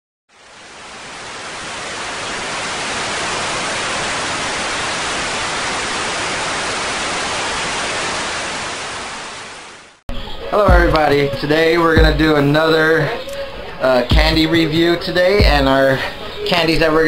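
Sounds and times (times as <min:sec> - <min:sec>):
static-like hiss: 0:00.3 - 0:10.0.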